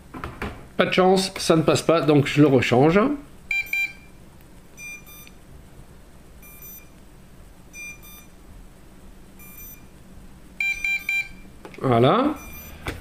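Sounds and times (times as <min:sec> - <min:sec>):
short high electronic beeps: 0:06.4 - 0:06.9, 0:07.8 - 0:08.3, 0:09.4 - 0:09.9, 0:12.4 - 0:12.8.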